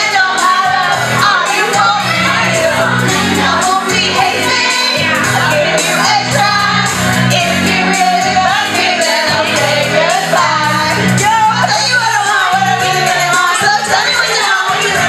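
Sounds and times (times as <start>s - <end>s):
karaoke backing track: 0.0s - 15.0s
women singing into microphones: 0.0s - 15.0s.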